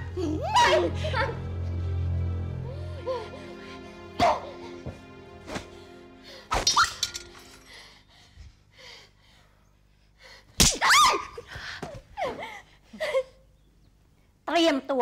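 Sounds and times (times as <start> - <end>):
woman whimpering and crying: 0.0 - 1.5, 2.7 - 4.9
woman shrieking: 0.2 - 1.4, 10.8 - 11.4
feather duster smack: 5.5 - 5.7.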